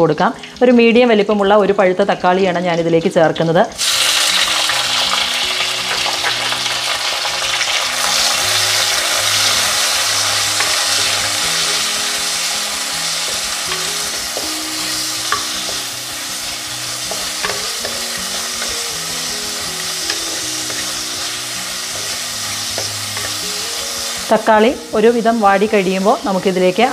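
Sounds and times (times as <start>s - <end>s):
tomatoes sizzling in oil: 0.0s - 26.9s.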